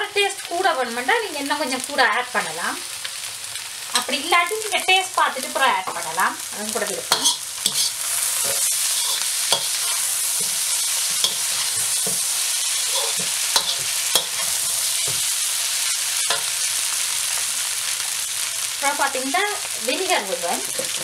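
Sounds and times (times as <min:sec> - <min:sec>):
noodles sizzling in a wok: 0:00.0 - 0:21.0
metal spatula scraping a pan: 0:07.1 - 0:17.0.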